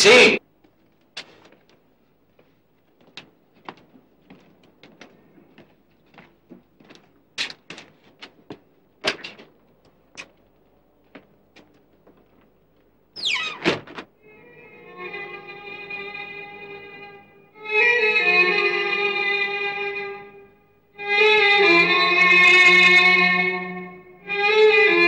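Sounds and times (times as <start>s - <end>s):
footsteps on hard floor: 0.6s - 12.6s
door banging shut: 13.2s - 14.1s
door hinges squealing: 13.2s - 14.1s.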